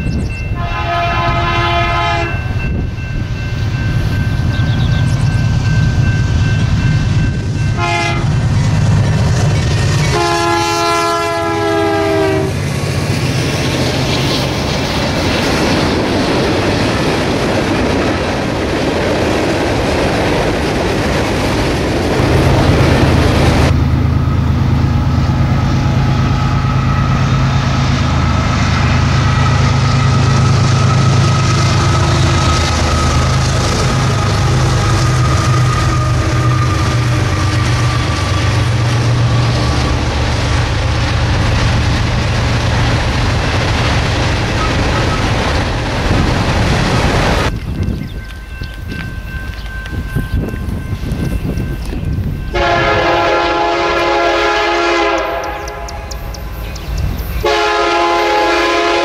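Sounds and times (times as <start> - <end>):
diesel locomotives running: 0.0 - 59.0
train air horn blasts: 0.6 - 2.6, 7.7 - 8.4, 10.1 - 12.6, 28.2 - 38.3, 52.5 - 56.3, 57.4 - 59.0.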